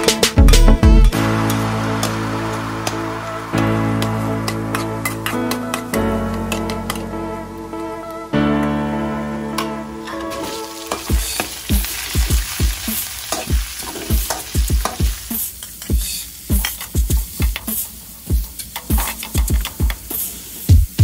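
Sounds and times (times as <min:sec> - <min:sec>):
meat sizzling in hot oil: 0:01.1 - 0:05.9, 0:10.4 - 0:20.7.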